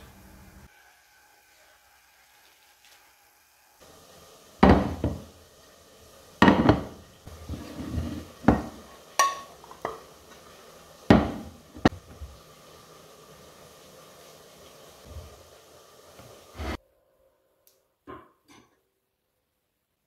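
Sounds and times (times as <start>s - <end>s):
glass bowl and plate clunking: 7.9s - 10.0s.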